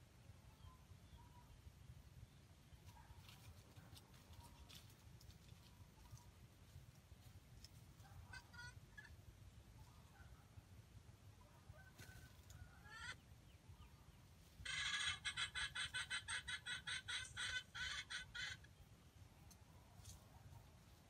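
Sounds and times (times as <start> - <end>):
chicken clucking: 8.0 - 9.2, 12.0 - 13.2, 14.6 - 18.7.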